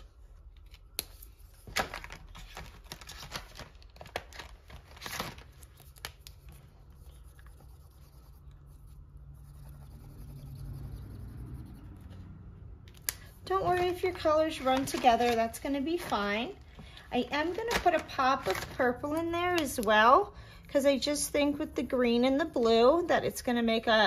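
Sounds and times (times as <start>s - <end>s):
plastic crinkling: 1.6s - 6.6s, 13.2s - 19.0s
faint low hum: 5.7s - 17.6s
marker scratching on plastic: 5.8s - 12.4s.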